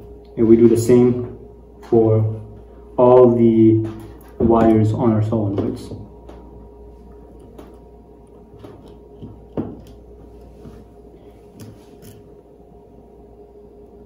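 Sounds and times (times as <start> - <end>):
faint hum: 0.0 - 14.0
screwdriver clicks and scrapes: 11.6 - 12.3.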